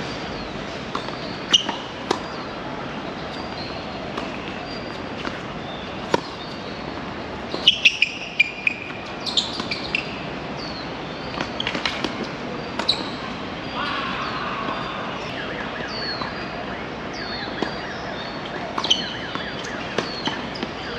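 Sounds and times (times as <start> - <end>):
tennis ball struck and bouncing: 0.9 - 2.5, 3.4 - 10.1, 11.4 - 13.3, 18.7 - 20.7.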